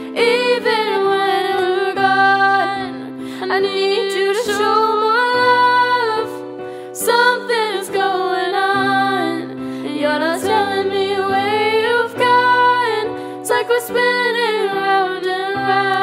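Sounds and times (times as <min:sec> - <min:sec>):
person singing: 0:00.0 - 0:16.0.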